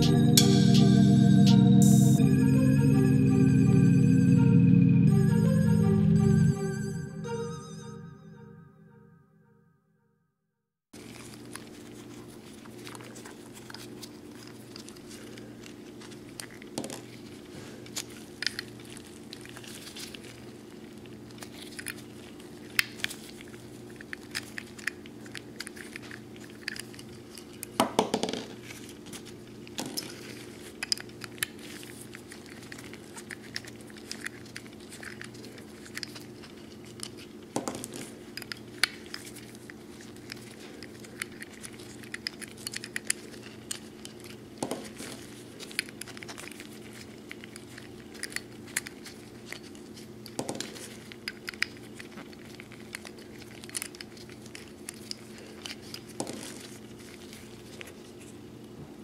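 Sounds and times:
steady low hum: 0:00.0 - 0:07.2
gloves rubbing: 0:11.0 - 0:27.7, 0:28.6 - 0:58.4
small metal clicks and scrapes: 0:21.3 - 0:27.8, 0:28.6 - 0:57.9.

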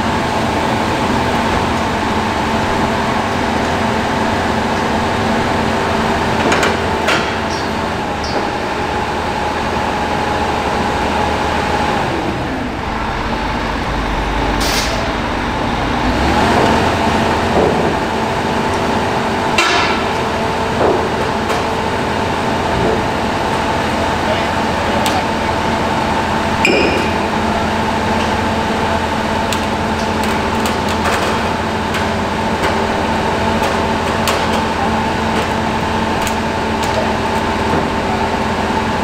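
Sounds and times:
excavator engine humming: 0:00.0 - 0:39.0
metallic clanks and knocks: 0:06.4 - 0:08.5, 0:19.5 - 0:21.9.

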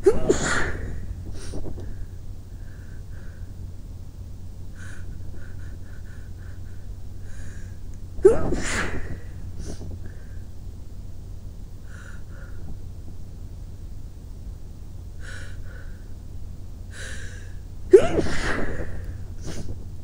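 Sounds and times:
sneeze into a pillow: 0:00.0 - 0:01.6, 0:08.2 - 0:09.8, 0:17.9 - 0:19.7
faint short breaths: 0:01.3 - 0:03.6, 0:04.8 - 0:07.8.

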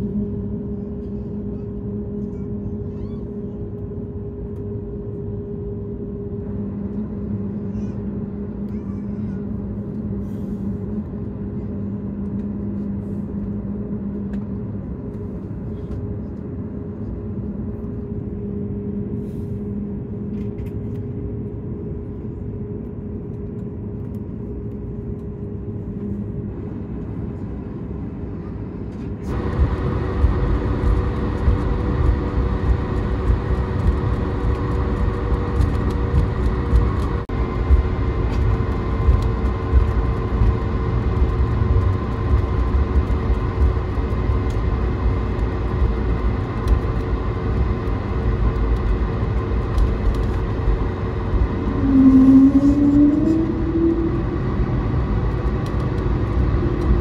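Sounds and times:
aircraft cabin hum: 0:00.0 - 0:57.0
droning tones: 0:29.2 - 0:57.0.

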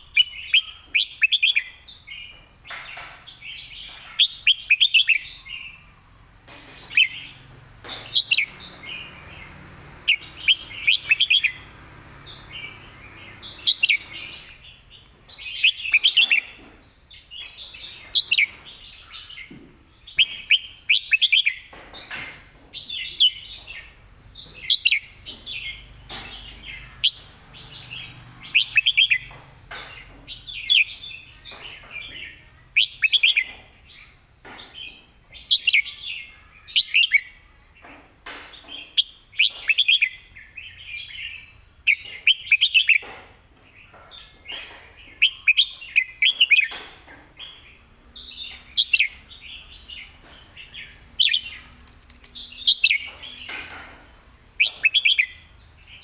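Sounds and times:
bulbul singing whistled notes: 0:10.1 - 0:11.7.

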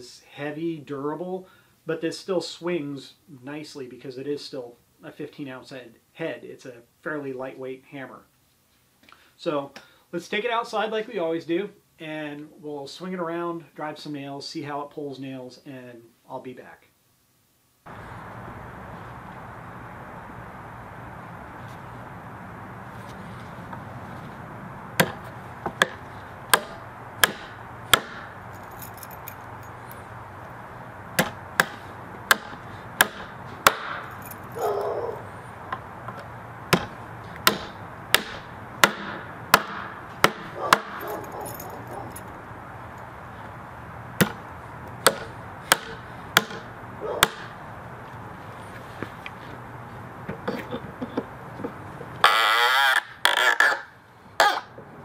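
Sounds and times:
hammer driving nails into wood: 0:25.8 - 0:28.3, 0:31.2 - 0:34.0, 0:36.7 - 0:41.0, 0:45.0 - 0:47.4.

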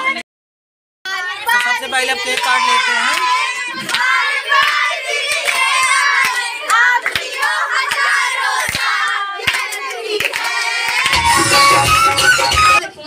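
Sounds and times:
young voices singing: 0:01.1 - 0:12.7
girls clapping hands: 0:01.5 - 0:11.6.

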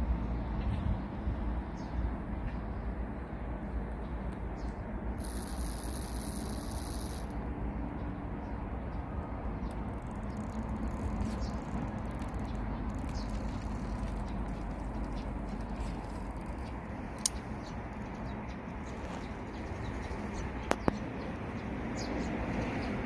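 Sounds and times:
sharp click: 0:17.2 - 0:17.4.

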